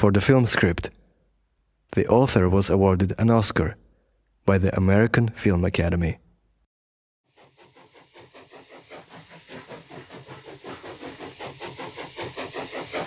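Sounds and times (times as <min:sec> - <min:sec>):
steam train rhythmic chugging: 0:07.3 - 0:13.0.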